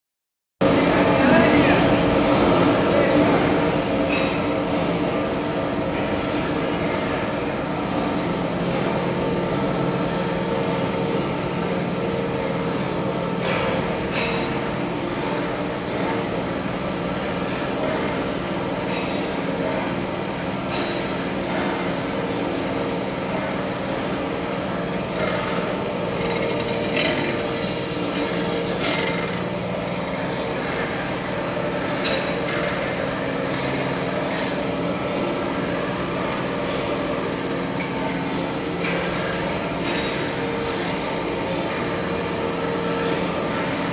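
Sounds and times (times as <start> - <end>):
lathe motor humming: 21.3 - 43.9.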